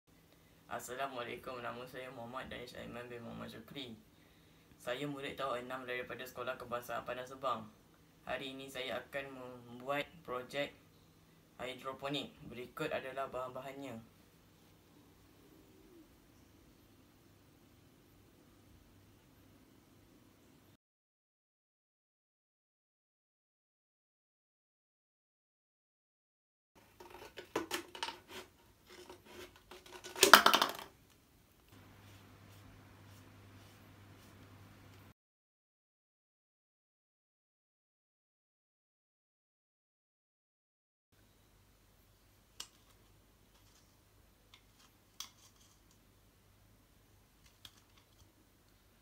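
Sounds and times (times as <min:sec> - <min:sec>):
scissors cutting plastic bottle: 0:26.9 - 0:30.4.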